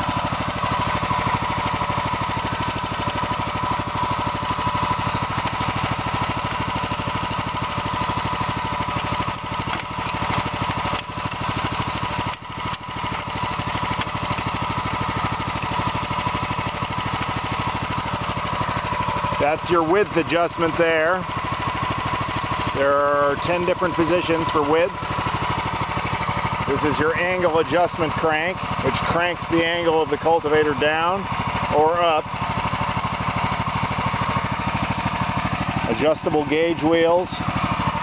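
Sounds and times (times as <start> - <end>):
tractor engine idling: 0.0 - 38.0.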